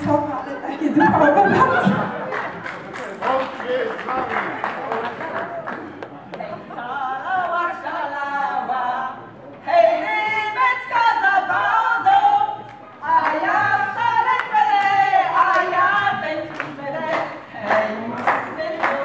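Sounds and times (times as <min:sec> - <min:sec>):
women singing unaccompanied: 0:00.0 - 0:02.2, 0:06.6 - 0:19.0.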